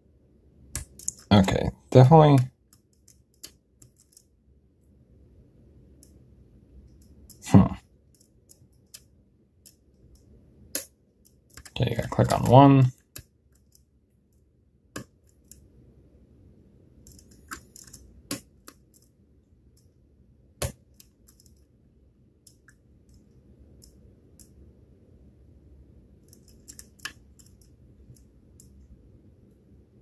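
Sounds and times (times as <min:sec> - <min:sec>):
lock pick clicking and scraping: 0:02.7 - 0:04.3, 0:17.0 - 0:19.1, 0:26.2 - 0:28.8.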